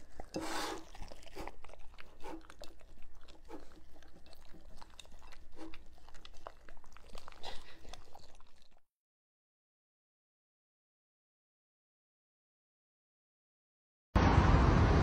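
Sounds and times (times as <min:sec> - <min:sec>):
dog licking and chewing: 0:00.0 - 0:08.9.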